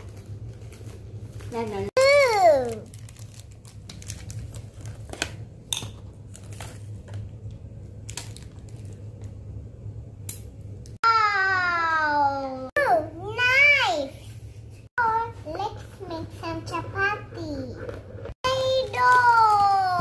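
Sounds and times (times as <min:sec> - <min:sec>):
child's drawn-out voice: 0:02.0 - 0:02.9, 0:11.0 - 0:14.2, 0:18.4 - 0:20.0
low steady hum: 0:02.6 - 0:18.3.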